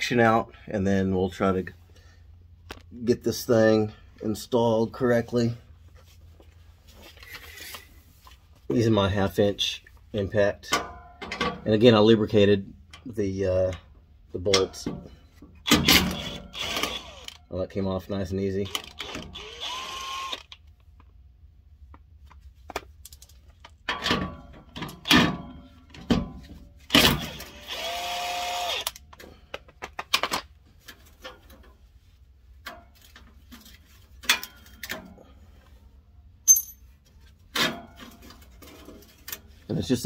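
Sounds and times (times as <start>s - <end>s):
tools clanking on exhaust pipe: 10.6s - 11.8s, 23.1s - 26.6s.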